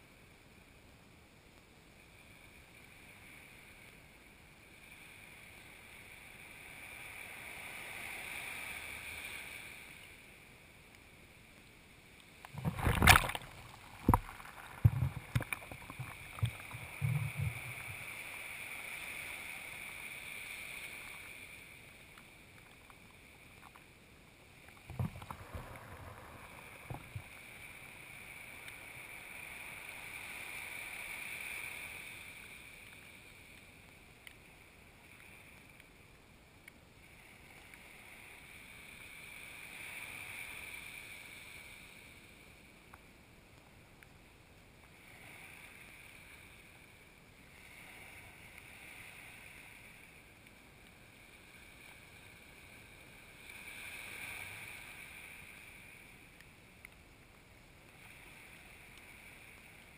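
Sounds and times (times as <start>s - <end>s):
small waves washing on sand: 2.1s - 59.9s
sharp knocks and splashes: 12.6s - 18.0s.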